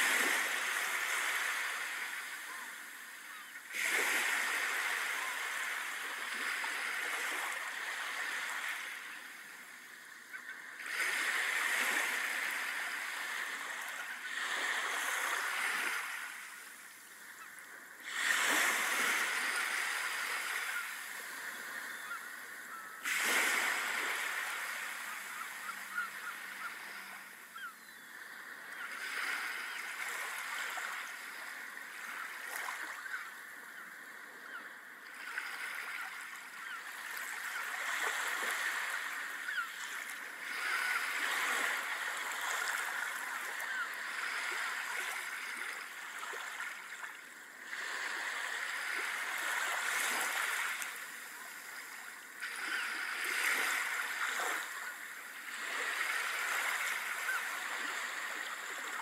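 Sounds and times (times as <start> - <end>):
surf breaking on a beach: 0.0 - 27.6.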